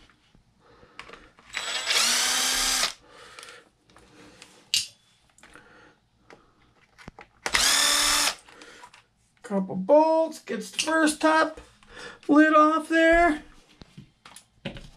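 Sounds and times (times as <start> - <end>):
cordless drill backing out screws: 1.5 - 2.9.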